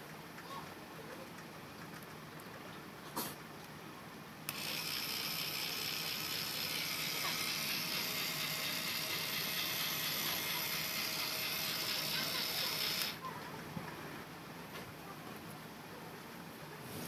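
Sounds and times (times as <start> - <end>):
small electric motor whirring: 4.5 - 13.2.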